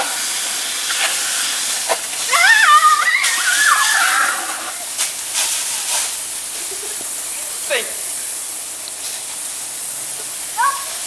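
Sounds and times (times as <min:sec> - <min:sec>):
garden hose spraying water: 0:00.0 - 0:11.0
child squealing: 0:02.3 - 0:04.8, 0:10.6 - 0:11.0.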